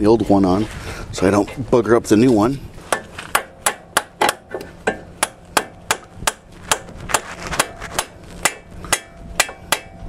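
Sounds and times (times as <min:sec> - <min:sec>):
hammer blows on metal: 0:02.9 - 0:10.0.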